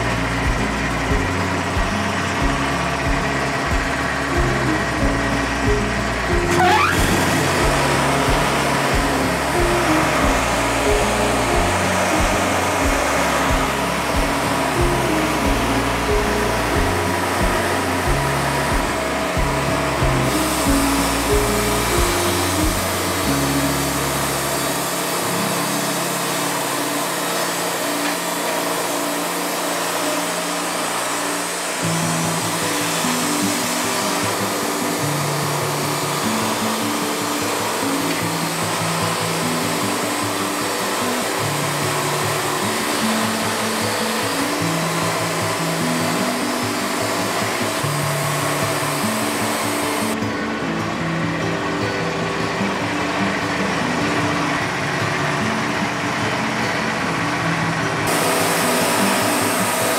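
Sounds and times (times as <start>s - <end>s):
background music with bass line: 0.0s - 25.7s
background music: 0.0s - 59.9s
band sawmill running: 0.0s - 59.9s.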